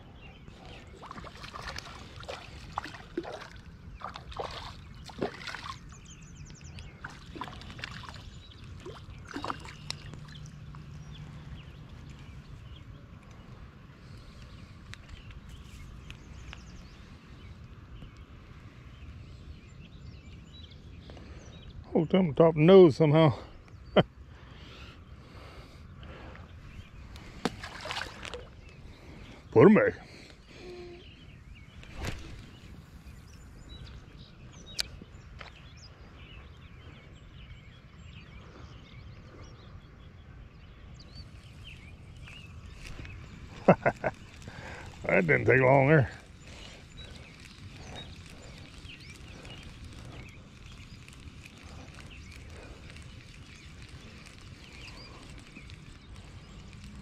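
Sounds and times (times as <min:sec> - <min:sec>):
faint bird chirps: 0:23.1 - 0:57.0
steady low rumble: 0:23.4 - 0:57.0.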